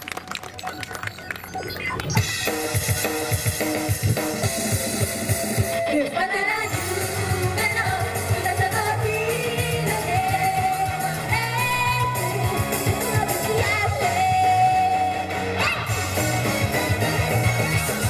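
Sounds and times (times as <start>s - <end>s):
rock pop backing track: 2.2s - 18.0s
women singing in unison: 6.0s - 15.8s.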